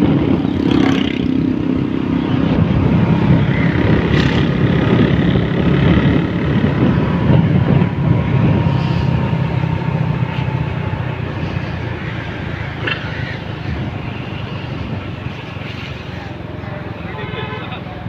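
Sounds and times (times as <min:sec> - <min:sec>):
vehicle engine and road noise: 0:00.0 - 0:18.0.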